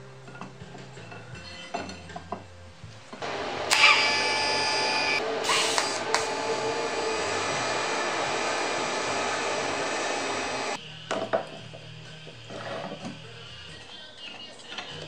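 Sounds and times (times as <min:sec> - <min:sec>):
welding arc hissing: 0:03.2 - 0:10.8.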